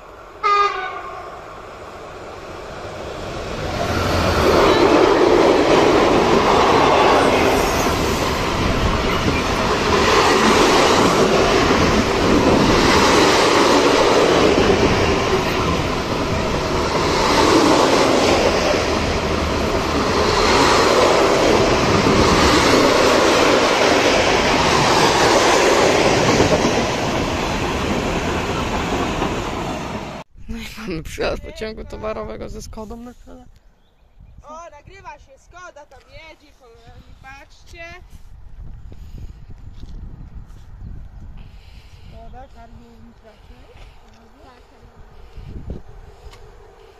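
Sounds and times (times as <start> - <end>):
freight train wheels rushing: 1.5 - 30.3.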